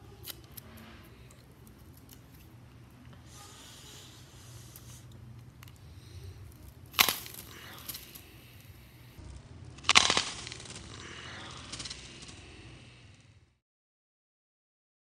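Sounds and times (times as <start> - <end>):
apple flesh crackling: 0.0 - 13.3
apple crunching snap: 0.1 - 3.1, 4.1 - 8.8, 9.8 - 12.4.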